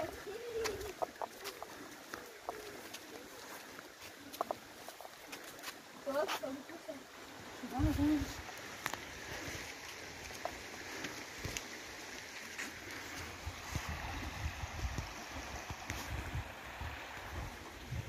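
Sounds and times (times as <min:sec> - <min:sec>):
river flowing over stones: 0:00.0 - 0:18.0.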